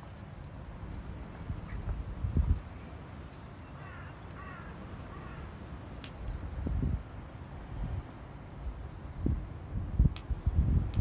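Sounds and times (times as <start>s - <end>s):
background noise: 0.0s - 11.0s
low rumble on microphone: 0.7s - 2.8s, 8.7s - 11.0s
bird calling harshly: 2.4s - 6.2s.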